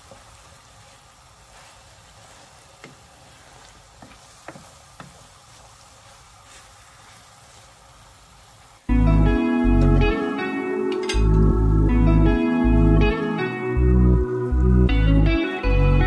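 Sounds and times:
food sizzling faintly in a pan: 0:00.0 - 0:16.0
wooden spatula knocking on pan: 0:02.8 - 0:03.1, 0:04.0 - 0:05.3.

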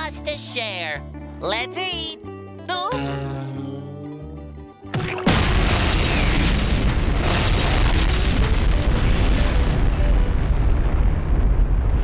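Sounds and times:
deep rumbling explosion: 0:05.0 - 0:12.0.

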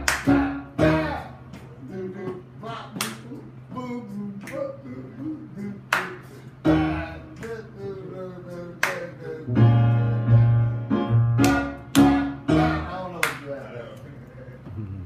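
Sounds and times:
electric keyboard chords: 0:00.0 - 0:01.4, 0:09.5 - 0:13.0.

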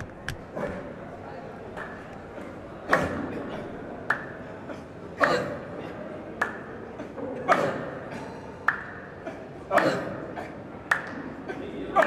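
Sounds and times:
faint crowd murmur: 0:00.0 - 0:12.0
rhythmic hand clapping: 0:04.0 - 0:04.4, 0:08.6 - 0:09.1, 0:10.8 - 0:11.4.

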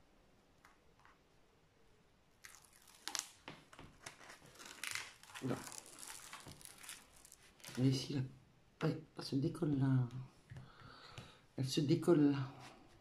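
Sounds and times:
release paper peeling and crinkling: 0:02.4 - 0:08.0.

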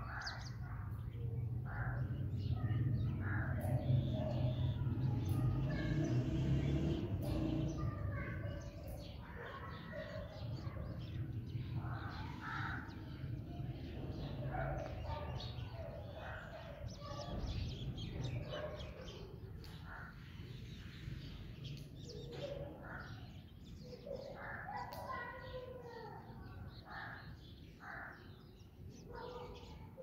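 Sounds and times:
sparrows chirping: 0:00.0 - 0:30.0.

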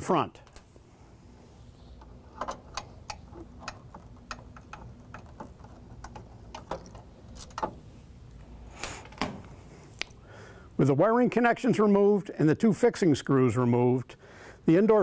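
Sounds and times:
nut driver clicking on screws: 0:02.0 - 0:07.8.

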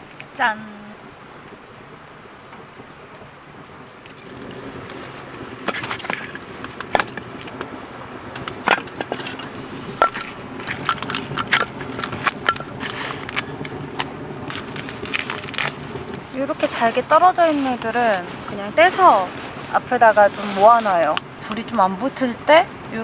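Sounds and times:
wood splinters snapping: 0:08.4 - 0:16.2.

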